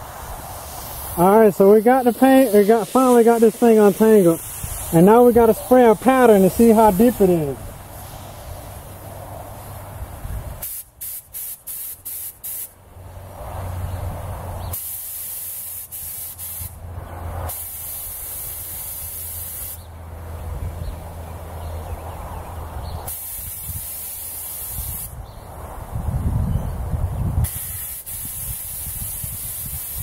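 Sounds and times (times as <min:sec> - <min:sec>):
paint spray gun hissing: 0:00.2 - 0:08.5, 0:10.6 - 0:12.7, 0:14.7 - 0:16.8, 0:17.5 - 0:19.8, 0:23.1 - 0:25.1, 0:27.5 - 0:30.0.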